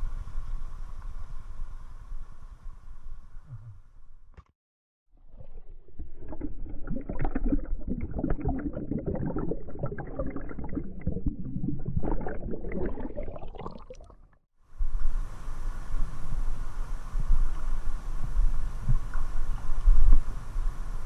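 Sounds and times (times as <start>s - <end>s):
muffled underwater water gurgling: 5.2s - 14.3s
hiss of moving water: 14.7s - 21.0s.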